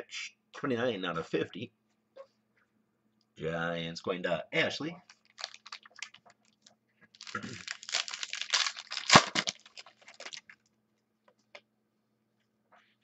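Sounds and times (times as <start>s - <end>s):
plastic sleeves crinkling: 5.0s - 10.7s.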